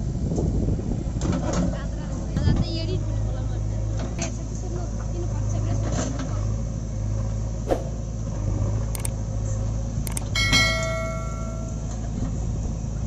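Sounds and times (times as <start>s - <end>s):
diesel engine running: 0.0s - 13.0s
ringing bell chime: 10.2s - 11.9s.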